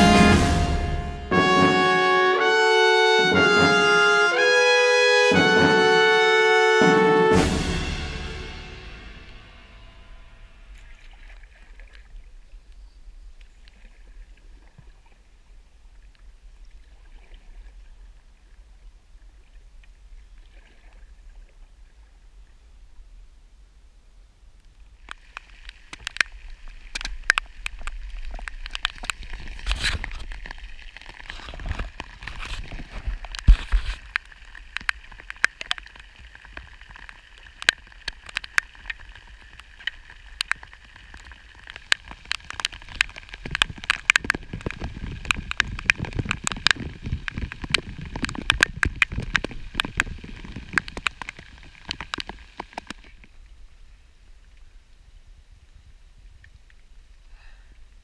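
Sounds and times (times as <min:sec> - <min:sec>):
rain hissing on water: 0:24.7 - 0:53.6
raindrops ticking: 0:33.0 - 0:53.1.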